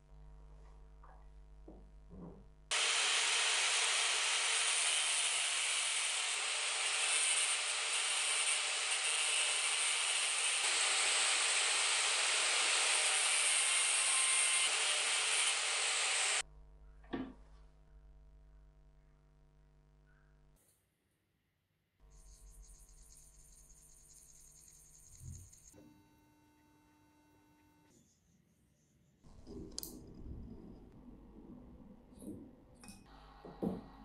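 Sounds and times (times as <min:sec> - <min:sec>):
angle grinder grinding steel: 0:02.7 - 0:16.4.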